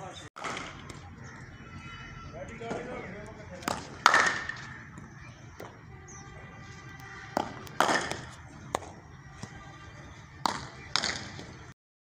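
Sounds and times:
bat striking cricket ball: 0:00.4 - 0:01.2, 0:03.6 - 0:05.9, 0:06.9 - 0:09.6, 0:10.4 - 0:11.7
cricket ball bouncing: 0:03.6 - 0:05.8, 0:07.0 - 0:09.6, 0:10.4 - 0:11.5.

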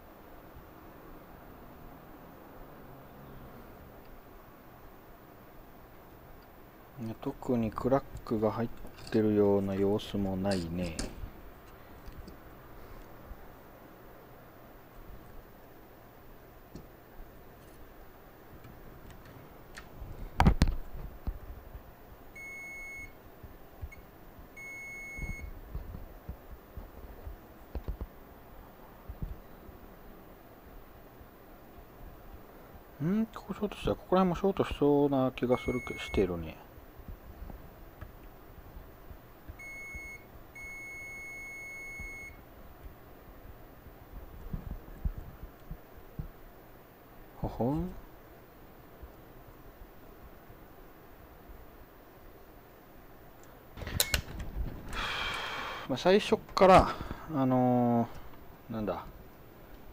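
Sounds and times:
multimeter continuity beeps: 0:22.4 - 0:23.2, 0:23.9 - 0:25.5, 0:35.5 - 0:36.3, 0:39.6 - 0:42.4.

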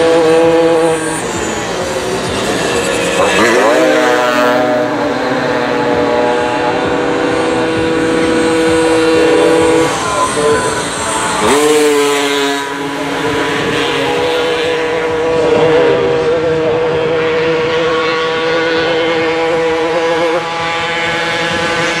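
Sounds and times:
moped engines high revs buzz: 0:00.0 - 0:22.0.

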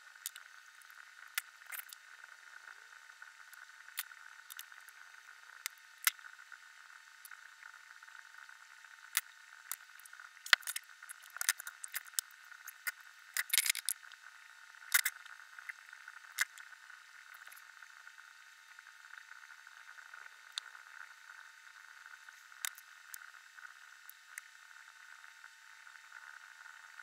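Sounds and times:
plastic parts and tweezers clicking: 0:13.4 - 0:13.9.

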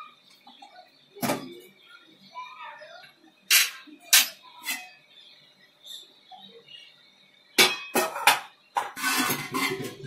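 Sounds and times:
metal pot lid clanking: 0:07.6 - 0:10.0.

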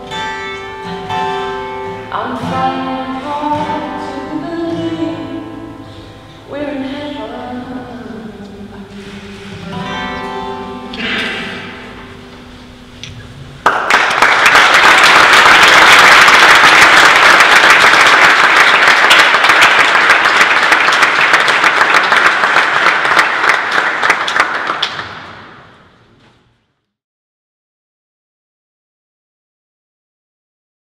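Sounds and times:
acoustic guitar chord ringing: 0:09.4 - 0:13.5
applause in a church: 0:13.6 - 0:25.8.

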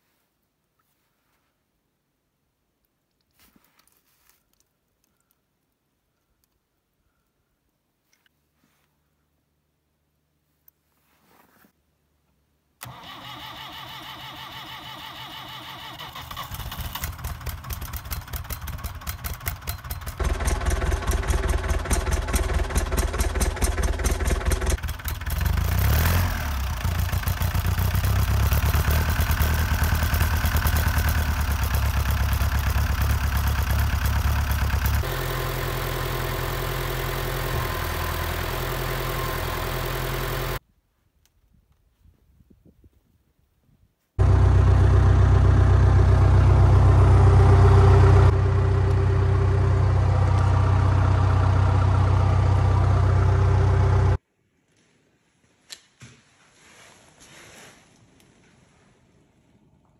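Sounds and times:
diesel engine starting and idling: 0:12.8 - 0:40.6, 0:44.2 - 0:54.2.

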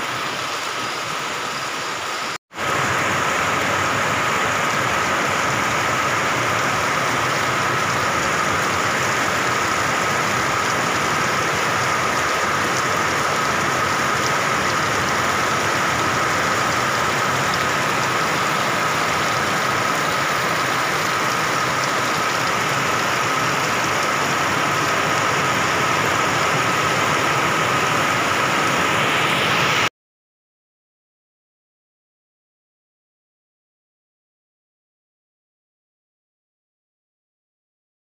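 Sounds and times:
heavy rain pouring: 0:00.0 - 0:29.9.

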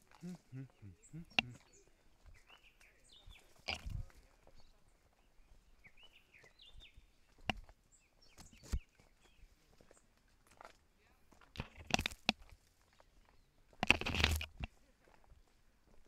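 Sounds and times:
bird chirps: 0:00.1 - 0:09.5
footsteps on rocky trail: 0:01.2 - 0:16.0.

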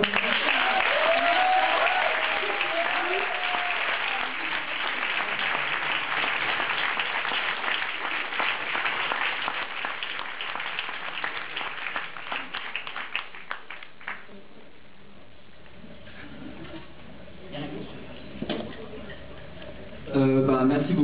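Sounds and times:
audience applauding: 0:00.0 - 0:14.4.

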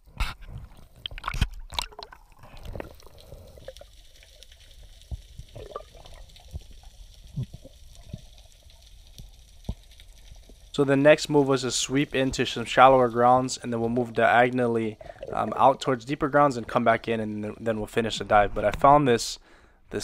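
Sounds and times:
small pops and crackles: 0:00.1 - 0:10.8
bubbly gurgles: 0:00.5 - 0:09.0, 0:11.6 - 0:18.5.

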